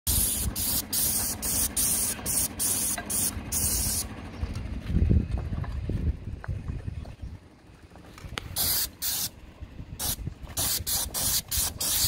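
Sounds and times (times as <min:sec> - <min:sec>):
paint spray gun hissing: 0:00.1 - 0:04.1, 0:08.5 - 0:09.4, 0:10.0 - 0:12.0
low rumble: 0:00.2 - 0:08.6.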